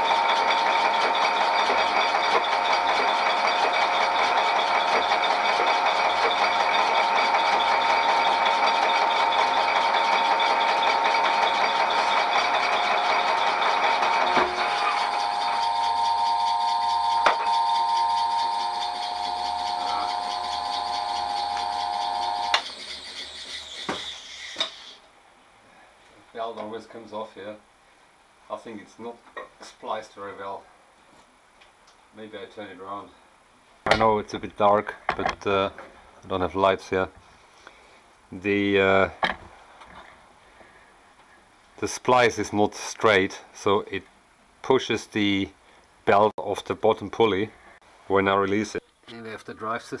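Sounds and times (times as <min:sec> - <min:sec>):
lathe knock: 0:00.0 - 0:23.2
lathe running with mechanical whine: 0:00.0 - 0:25.0.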